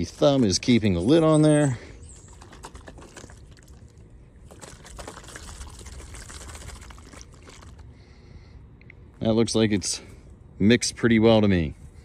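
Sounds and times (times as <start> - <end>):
liquid sloshing in plastic jug: 2.1 - 7.9.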